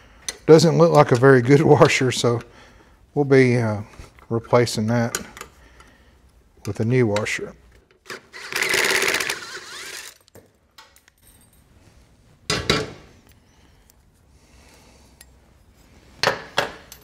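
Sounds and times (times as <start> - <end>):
screwdriver grinding rasp: 8.1 - 10.2.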